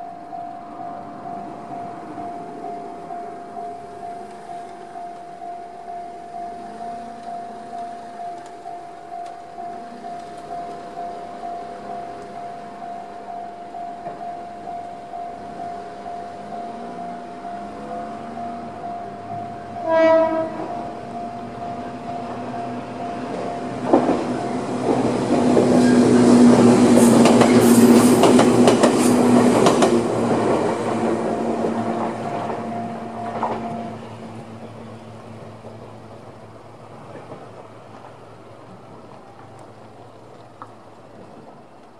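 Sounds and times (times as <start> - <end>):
level crossing alarm ringing: 0.0 - 35.2
train rumbling over rail joints: 0.0 - 41.9
train horn blast: 19.4 - 22.9.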